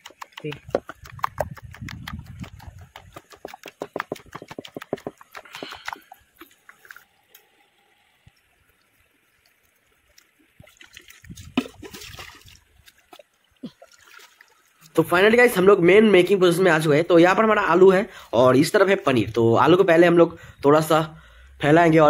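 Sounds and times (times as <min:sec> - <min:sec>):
hand squelching through batter: 0:00.0 - 0:07.1
water trickling: 0:00.0 - 0:16.5.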